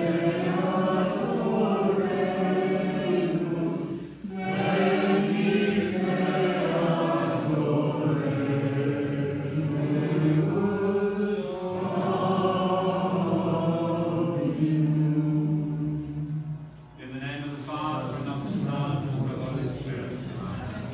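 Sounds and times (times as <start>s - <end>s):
congregation singing in unison: 0.0s - 20.9s
person speaking: 17.0s - 20.9s.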